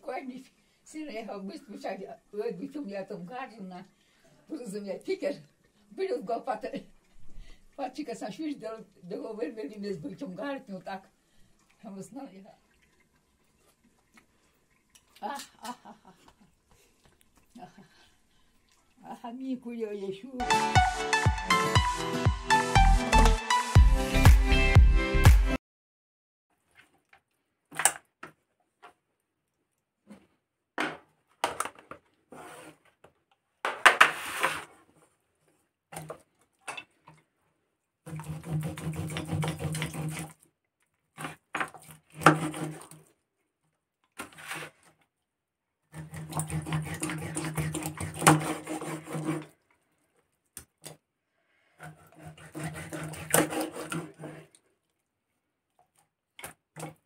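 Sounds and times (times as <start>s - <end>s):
knife sawing through fish: 38.1s - 40.4s, 42.1s - 43.0s, 45.9s - 49.5s, 51.8s - 54.6s.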